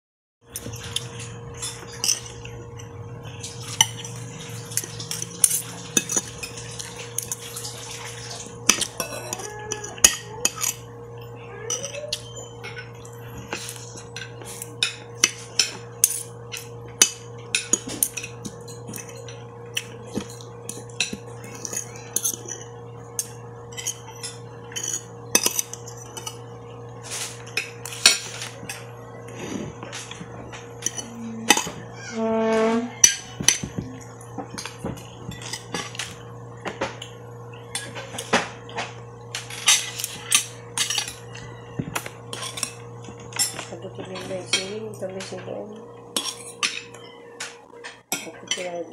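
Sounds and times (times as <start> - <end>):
short hum: 31.0 - 33.0.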